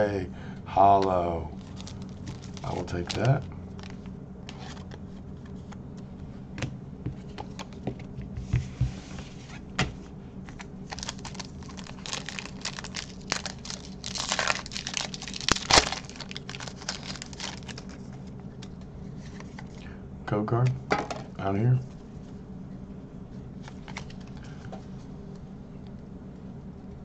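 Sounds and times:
foil wrapper crinkling: 1.5 - 5.0, 10.9 - 18.7
foil pack tearing: 1.6 - 4.9, 10.9 - 18.0.

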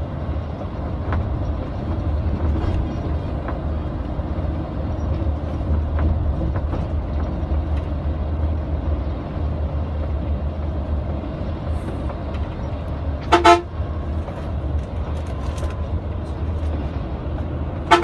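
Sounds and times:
bus engine drone and road noise: 0.0 - 18.0
vehicle horn toots: 13.3 - 13.7.

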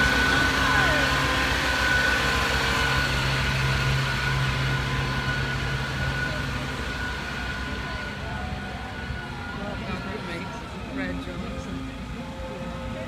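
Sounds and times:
vehicle engine idling: 0.0 - 13.0.

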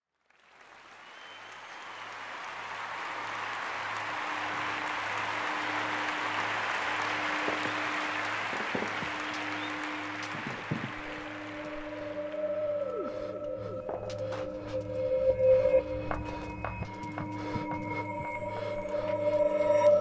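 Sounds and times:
crowd applause: 0.0 - 14.8
low pulsing musical drone: 4.2 - 20.0.

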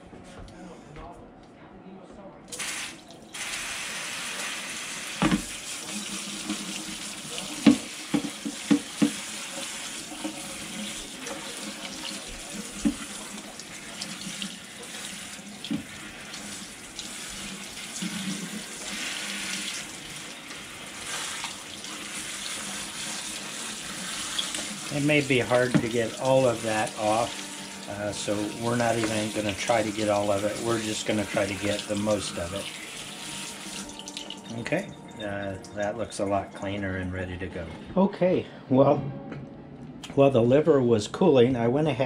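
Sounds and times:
faucet running into a sink: 2.5 - 35.2.

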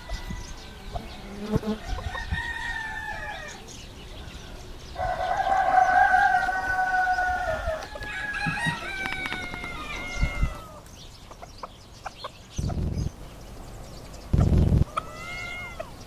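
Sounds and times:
rooster crowing: 0.0 - 10.8
chickens clucking and chirping: 0.0 - 16.0.

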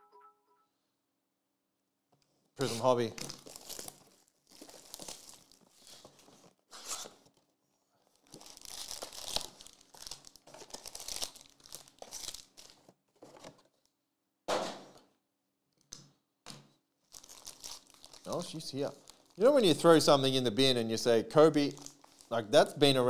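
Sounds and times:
foil packs crinkling and tearing: 2.6 - 7.3, 8.1 - 12.9, 17.1 - 19.8, 21.6 - 22.4.

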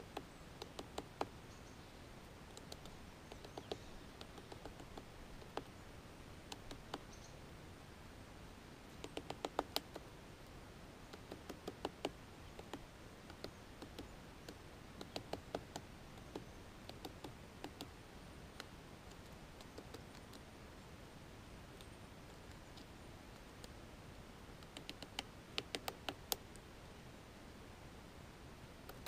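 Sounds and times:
woodpecker tapping on wood: 0.0 - 1.4, 2.5 - 5.8, 6.5 - 7.1, 9.0 - 10.1, 11.0 - 20.4, 24.5 - 26.6.

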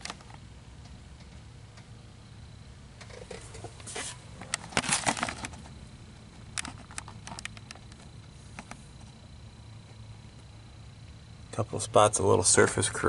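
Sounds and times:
camera handling rustling: 3.1 - 5.8
sharp clicks: 6.5 - 8.8.

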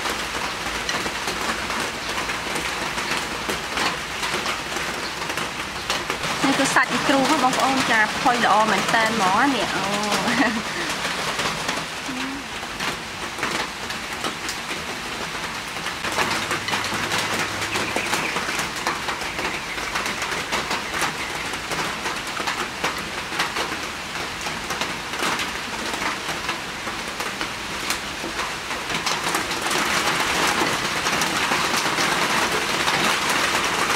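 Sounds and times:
raindrops ticking: 0.0 - 33.9
steady rain: 0.0 - 33.9.

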